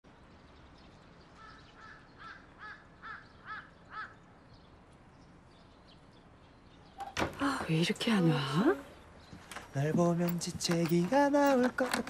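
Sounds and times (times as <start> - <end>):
faint outdoor background noise: 0.0 - 12.0
bird calling: 1.3 - 4.4.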